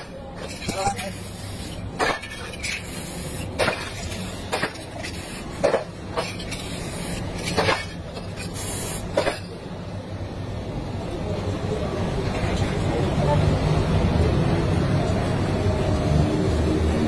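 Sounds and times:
spray paint can hissing: 2.7s - 4.4s, 5.0s - 5.5s, 6.6s - 7.4s, 8.4s - 9.1s.

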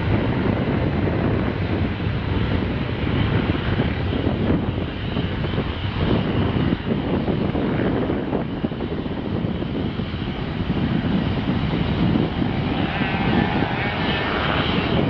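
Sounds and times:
high engine whine: 0.0s - 15.0s
jet engines rumbling: 0.0s - 15.0s.

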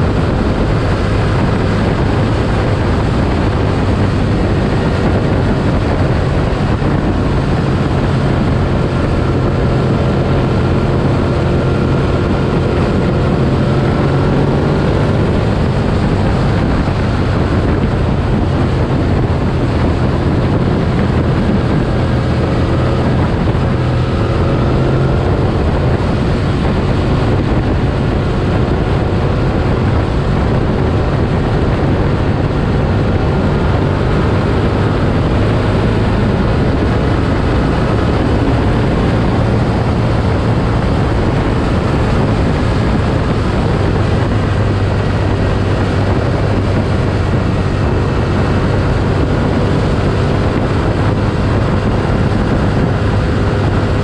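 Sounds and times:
motorcycle engine cruising: 0.0s - 54.0s
wind noise on microphone: 0.0s - 54.0s.

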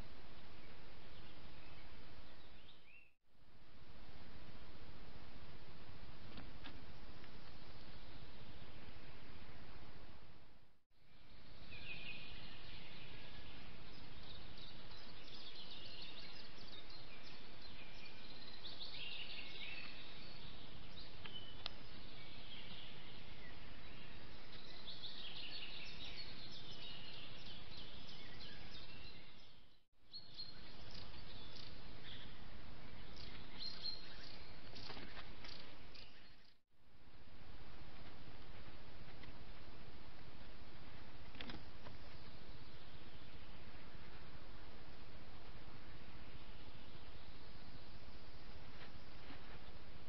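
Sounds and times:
birds singing: 0.4s - 3.2s, 11.1s - 36.6s, 41.4s - 44.4s.

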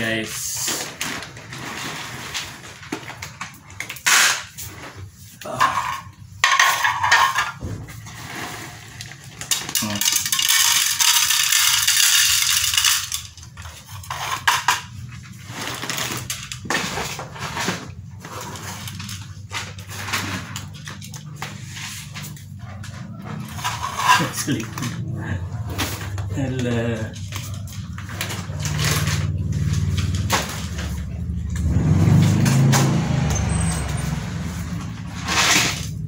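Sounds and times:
kibble rattling into plastic tray: 9.0s - 16.6s.

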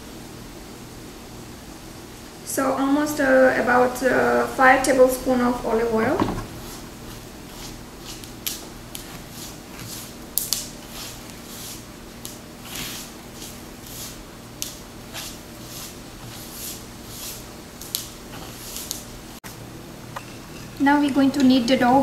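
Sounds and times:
hands rubbing flour mix: 6.0s - 19.5s.

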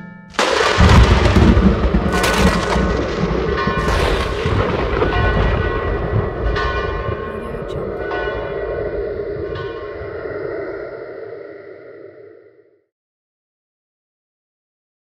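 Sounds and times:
deep bell tolling: 0.4s - 11.3s
low rumbling drone: 0.4s - 12.8s.

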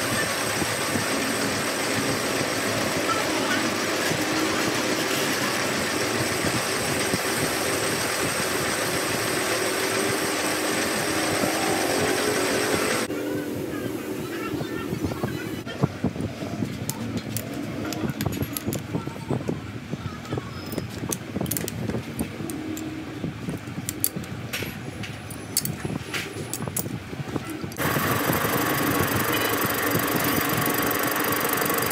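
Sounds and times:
metal lathe whirring: 0.0s - 13.1s, 27.8s - 31.9s
metal clicks and rattles: 16.9s - 19.0s, 20.6s - 22.9s.

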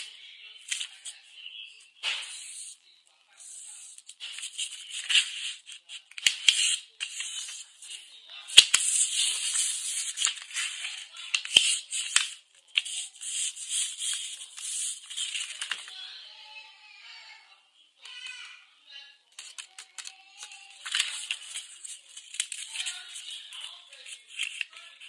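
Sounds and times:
paper snapping: 20.8s - 23.0s.

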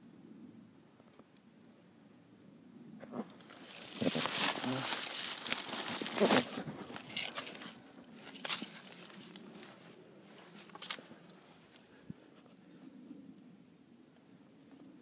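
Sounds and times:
microphone handling noise: 3.0s - 7.7s
rustling in dry leaves: 3.3s - 11.8s.

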